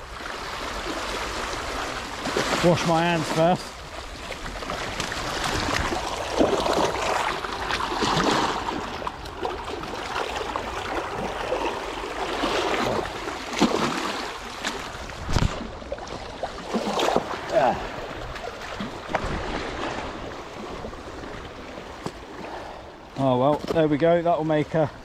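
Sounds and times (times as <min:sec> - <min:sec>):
sea water splashing on rocks: 0:04.2 - 0:22.2.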